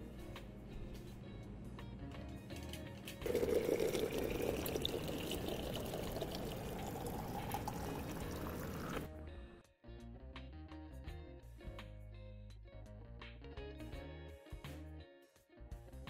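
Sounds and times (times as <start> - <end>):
water pouring into plastic bottle: 3.2 - 9.1.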